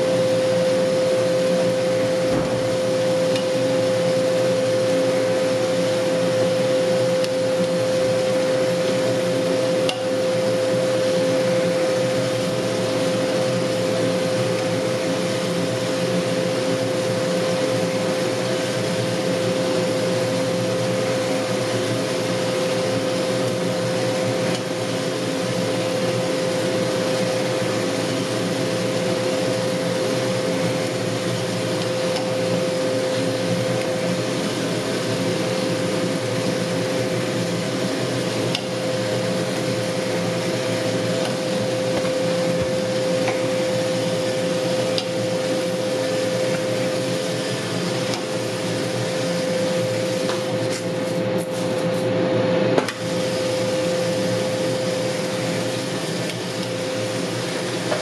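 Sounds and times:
fans and motors whirring: 0.0 - 58.0.

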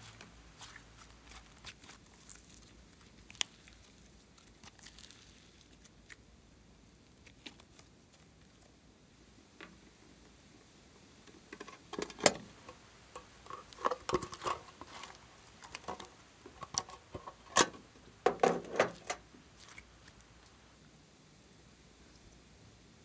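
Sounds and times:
slime squelching and popping: 0.0 - 6.2.

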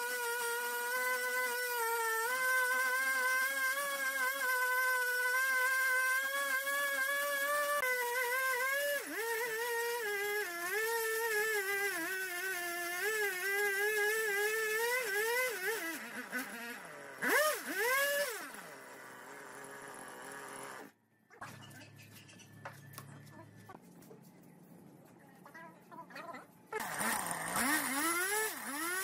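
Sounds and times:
chainsaw cutting wood: 0.0 - 21.0, 26.7 - 29.0
chainsaw idling: 0.0 - 21.0, 26.8 - 29.0
chainsaw throttle blips: 0.0 - 21.0, 26.7 - 29.0.

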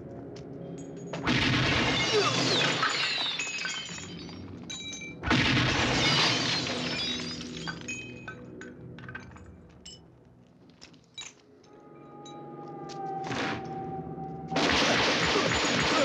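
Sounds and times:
glass shattering and debris breaking: 1.0 - 10.0, 14.6 - 16.0
automatic gunfire: 14.6 - 16.0.

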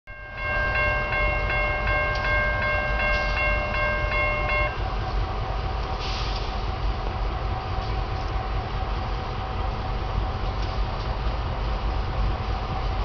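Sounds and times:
crossing warning bell ringing: 0.1 - 5.2.

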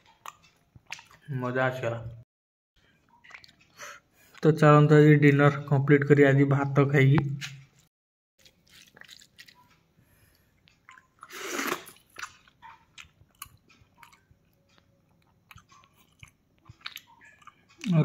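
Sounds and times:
man chewing food: 0.0 - 1.3, 2.8 - 4.4, 7.4 - 18.0
fingers squishing food: 8.4 - 10.0, 11.9 - 18.0.

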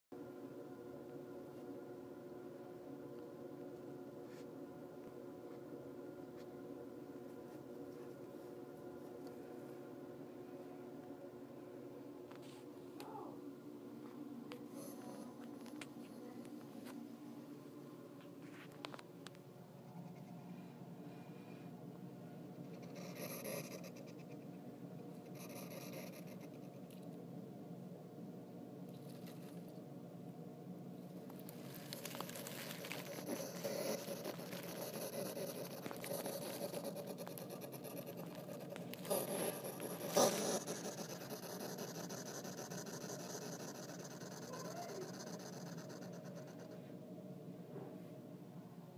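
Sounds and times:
hedgehog hissing: 22.8 - 24.4, 32.0 - 46.8
rustling in wood shavings: 31.3 - 41.1.

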